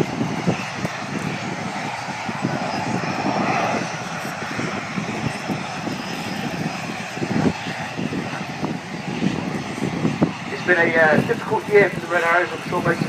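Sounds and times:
distant jet engines running: 0.0 - 13.0.

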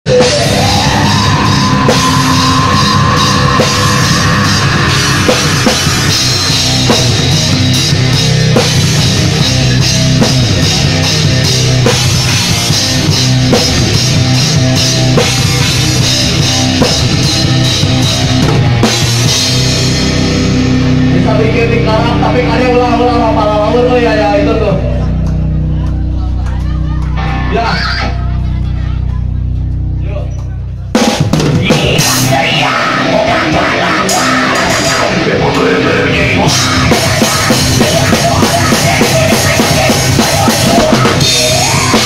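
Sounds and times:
rock band playing live: 0.0 - 30.0, 30.9 - 42.0
drum kit with cymbals: 0.1 - 22.3, 30.9 - 42.0.

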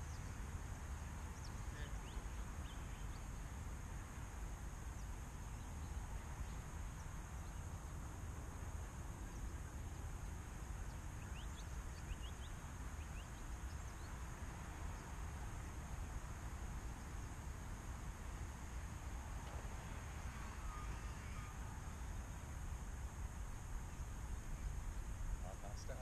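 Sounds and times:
bird chirps: 10.8 - 14.2.

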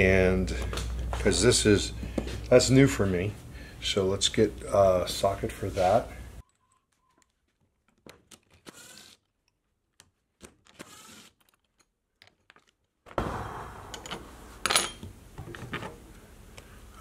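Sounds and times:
cordless drill running in bursts: 8.7 - 9.2, 10.8 - 11.3
handling noise and clatter: 11.4 - 13.2, 13.9 - 16.1.

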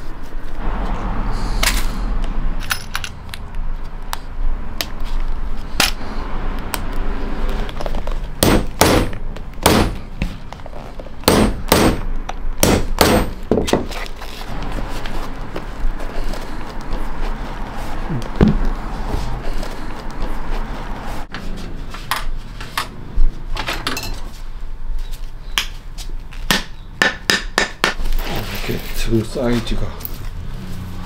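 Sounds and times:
metal eyelets clinking: 2.6 - 3.4
hard metallic strikes: 8.4 - 10.1, 11.3 - 13.4.

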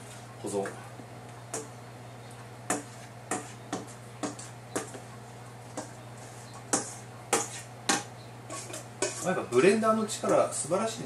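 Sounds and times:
metal spoon scraping steel bowl: 5.8 - 7.7, 8.5 - 9.6.

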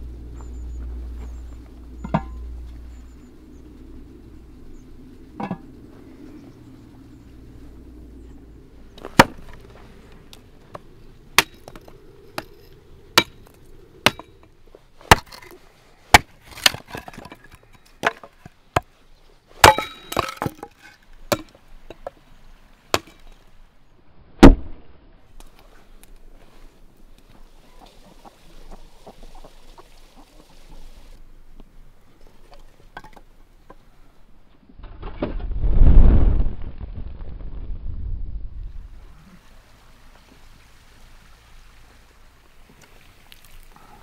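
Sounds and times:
hatchet chopping wood: 9.1 - 9.4, 11.4 - 11.8, 14.1 - 14.3, 15.0 - 15.5.

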